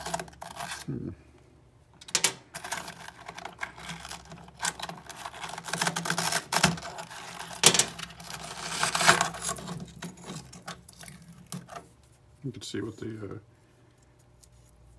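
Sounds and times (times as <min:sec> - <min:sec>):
ceramic fragments clicking and crunching: 0:02.0 - 0:11.8.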